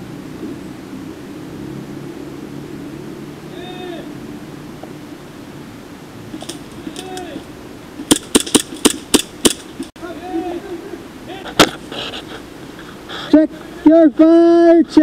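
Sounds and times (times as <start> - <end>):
airsoft pistol shots: 8.1 - 9.7.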